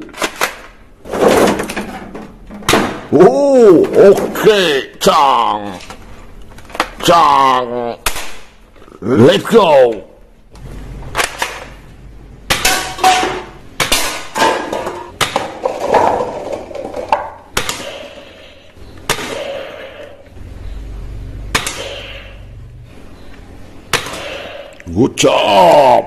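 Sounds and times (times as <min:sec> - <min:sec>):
cups and cans clattering: 0:12.6 - 0:17.5
toy dart blaster snapping: 0:21.5 - 0:22.0.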